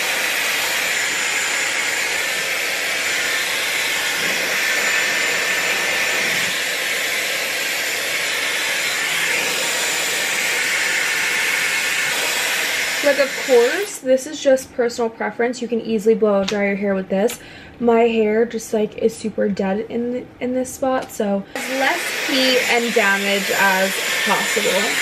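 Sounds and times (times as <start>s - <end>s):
hair dryer blowing air: 0.0s - 14.1s, 21.5s - 25.0s.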